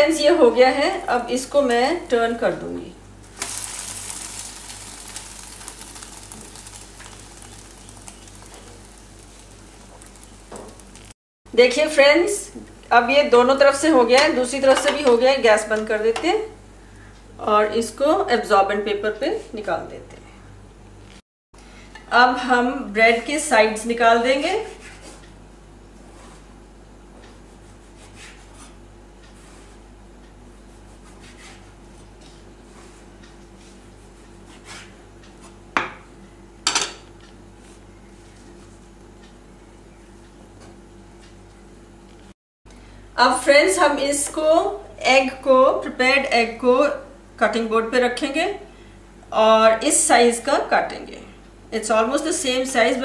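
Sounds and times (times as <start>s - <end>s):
steady low hum: 0.0s - 53.0s
omelette sizzling in frying pan: 3.2s - 11.2s
knife scraping through bread crust: 24.4s - 25.3s, 26.0s - 26.6s, 27.3s - 29.9s, 30.5s - 35.6s.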